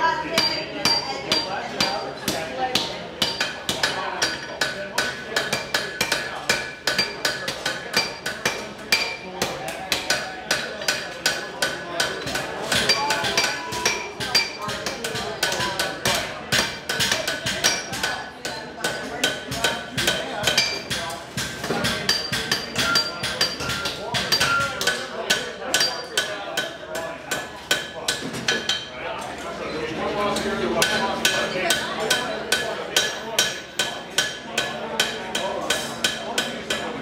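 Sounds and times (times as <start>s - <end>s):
hammers striking hot steel: 0.4s - 18.1s, 18.9s - 26.7s.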